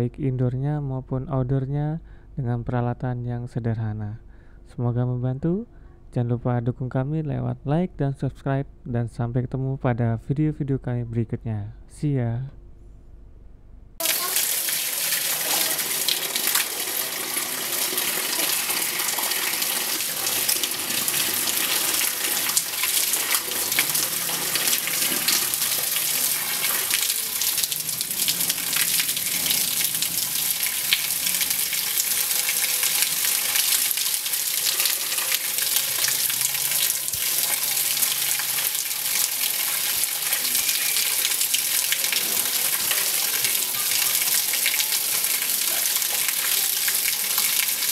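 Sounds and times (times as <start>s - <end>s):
hose water spraying on metal fins: 14.0s - 47.9s.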